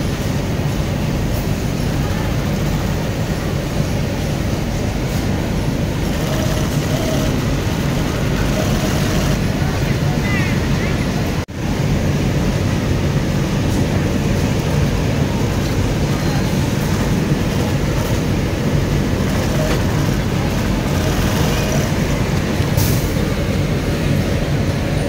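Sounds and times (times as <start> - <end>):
sewing machine humming: 5.4 - 9.8, 14.6 - 22.9.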